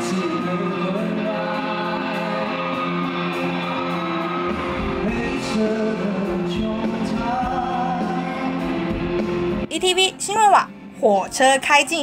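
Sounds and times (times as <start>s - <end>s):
man singing: 0.0s - 2.8s, 5.0s - 8.6s
acoustic and electric guitars: 0.0s - 11.5s
deep bass: 4.5s - 9.7s.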